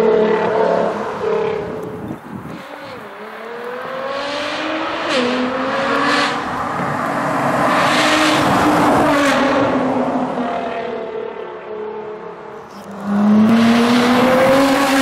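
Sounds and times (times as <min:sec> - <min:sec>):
car engine accelerating hard: 0:12.8 - 0:15.0.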